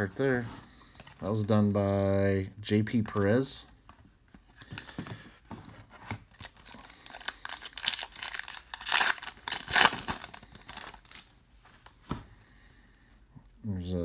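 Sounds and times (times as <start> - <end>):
plastic wrapper crinkling: 6.1 - 11.3
plastic wrapper tearing: 6.3 - 11.3.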